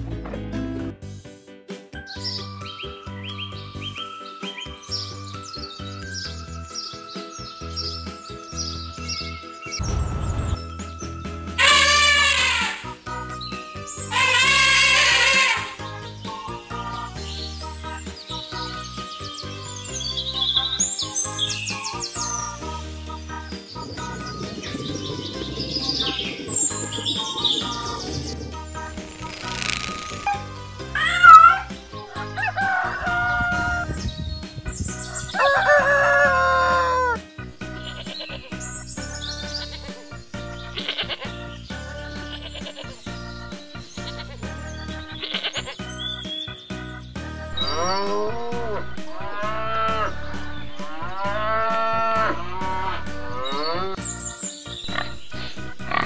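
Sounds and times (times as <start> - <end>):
background music: 0.0 - 56.0
rooster crowing: 32.2 - 33.9, 35.1 - 37.2
cattle mooing: 47.6 - 50.2, 50.8 - 54.0.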